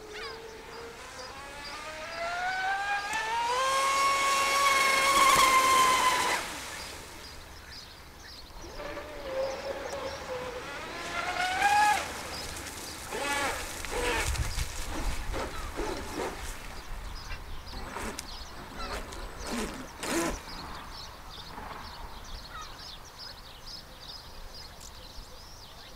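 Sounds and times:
model boat motor whining: 0.0s - 7.6s, 8.5s - 16.7s, 17.6s - 20.8s.

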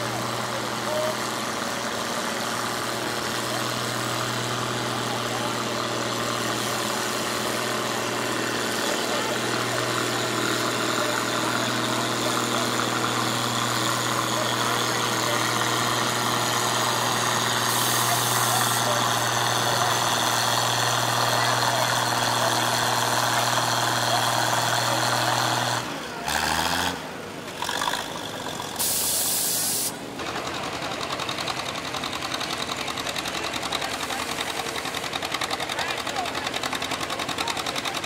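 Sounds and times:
tractor engine under load: 0.0s - 38.0s
two-cylinder tractor engine: 0.0s - 38.0s.

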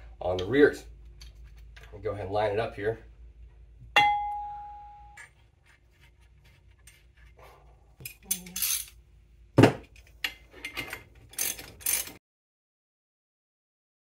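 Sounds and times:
metal clinks and scrapes: 8.0s - 9.0s, 10.0s - 12.2s.

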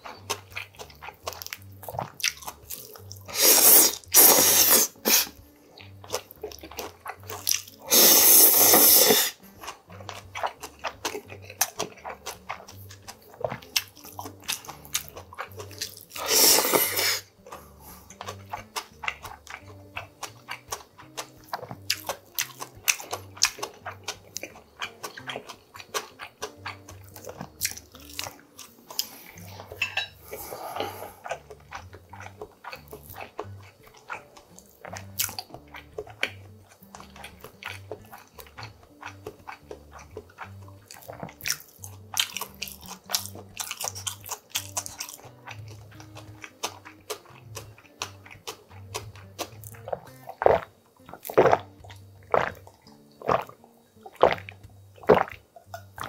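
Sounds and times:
wet chewing and mouth clicks: 0.0s - 56.0s
loud noodle slurps: 3.3s - 5.4s, 7.9s - 9.4s, 16.2s - 17.3s, 55.0s - 55.4s.

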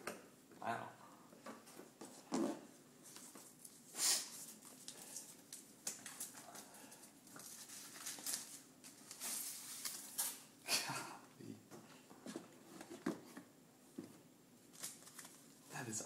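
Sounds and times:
packaging rustling: 14.7s - 15.6s.

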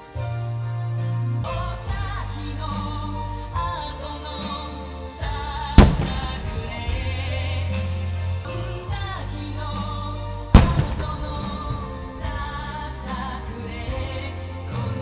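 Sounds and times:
music with singing: 0.0s - 15.0s
firework booms: 5.8s - 7.4s, 10.6s - 12.8s.

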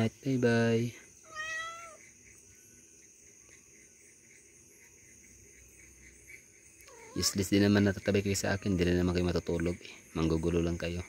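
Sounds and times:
insects chirring: 0.0s - 11.0s
cat meowing: 1.3s - 2.0s, 6.9s - 7.3s.

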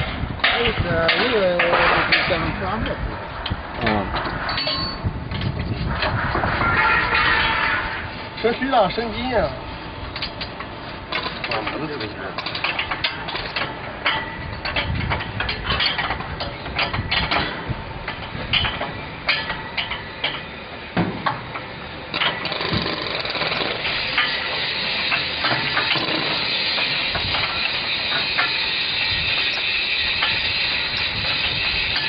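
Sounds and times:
steel hand tools clanking: 3.8s - 5.6s, 21.2s - 32.0s.

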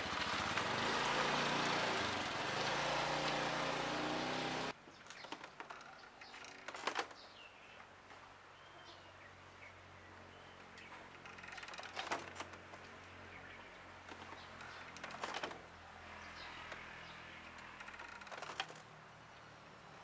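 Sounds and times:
clicks and metallic rattles: 14.1s - 15.6s.

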